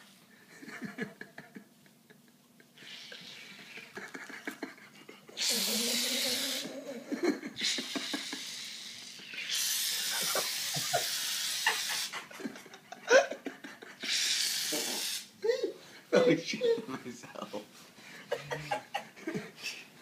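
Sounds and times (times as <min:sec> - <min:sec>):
aerosol can hissing: 0:05.4 - 0:06.7, 0:07.6 - 0:12.1, 0:14.1 - 0:15.3.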